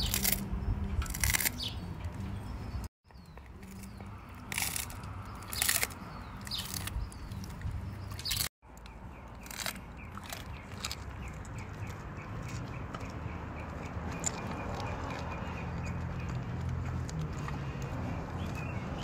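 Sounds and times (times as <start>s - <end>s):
fish bones crunching: 0.0s - 0.4s, 1.0s - 1.6s, 3.6s - 8.5s, 9.3s - 12.6s
dog chewing: 9.3s - 18.6s.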